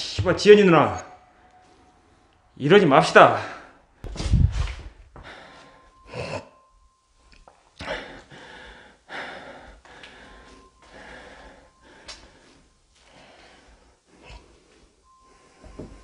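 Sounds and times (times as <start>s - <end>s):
person breathing: 4.7s - 6.6s, 7.8s - 16.0s.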